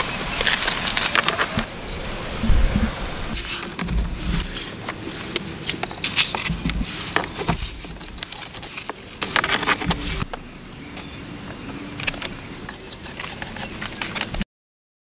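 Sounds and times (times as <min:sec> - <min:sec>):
stones knocking and scraping: 0:00.4 - 0:01.7, 0:02.6 - 0:10.4.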